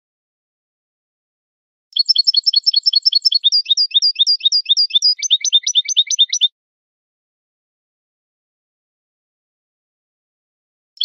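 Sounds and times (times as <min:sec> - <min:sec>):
goldfinch singing rapid notes: 0:02.0 - 0:06.5.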